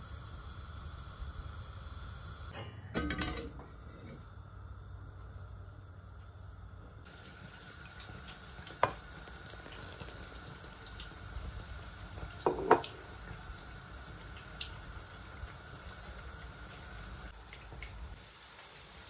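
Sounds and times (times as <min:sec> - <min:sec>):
liquid pouring into pot: 0:07.1 - 0:14.7.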